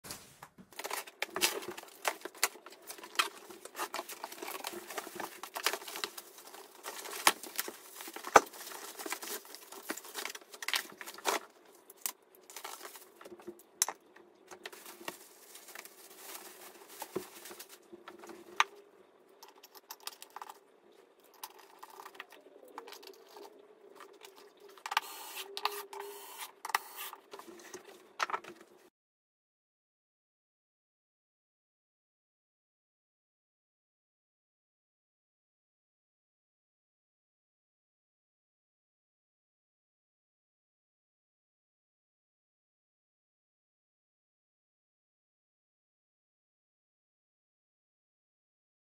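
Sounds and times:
cardboard and plastic rustling: 0.0 - 18.8, 21.4 - 28.9.

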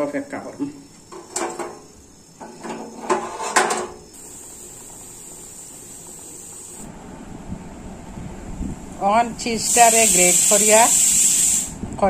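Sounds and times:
faint hiss: 0.0 - 12.0
pots and utensils knocking: 1.1 - 1.8, 2.4 - 4.0.

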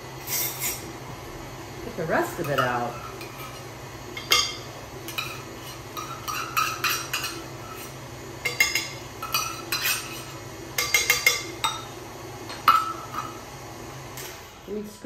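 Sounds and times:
metal spoon scraping a metal cup: 0.2 - 0.8, 8.5 - 11.5.

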